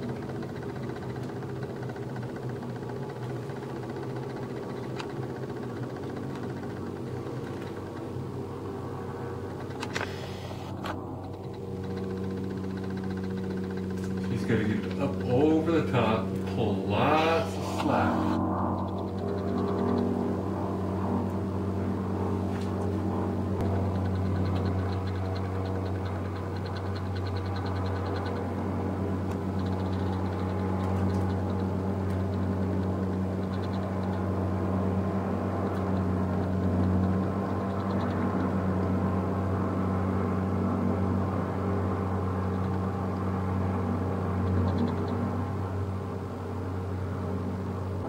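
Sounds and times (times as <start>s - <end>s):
low mechanical drone: 0.0s - 48.0s.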